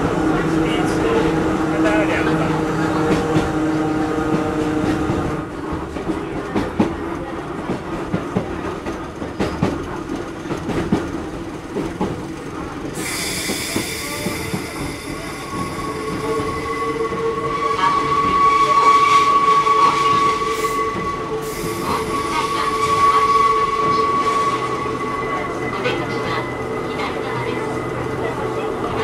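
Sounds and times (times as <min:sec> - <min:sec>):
train wheels rumbling over rails: 0:00.0 - 0:29.0
high-pitched wheel squeal: 0:14.9 - 0:26.4.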